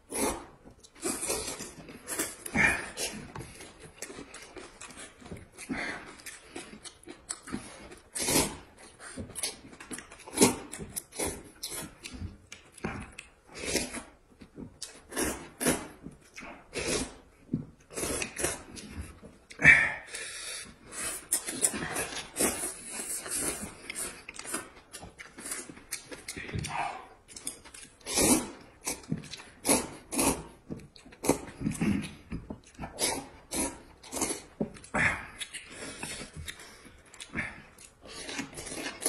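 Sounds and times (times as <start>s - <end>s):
noodles being slurped: 19.6s - 39.0s.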